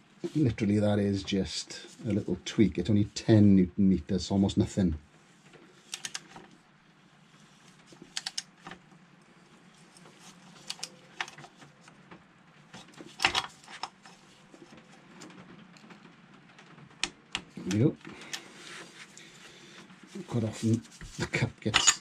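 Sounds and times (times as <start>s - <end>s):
wrench clicks and clinks: 21.8s - 22.0s.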